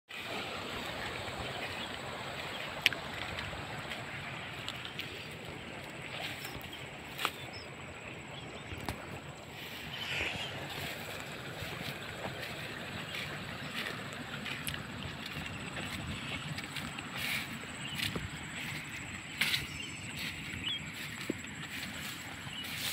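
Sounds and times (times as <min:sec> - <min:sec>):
wind on microphone: 0:08.7 - 0:22.9.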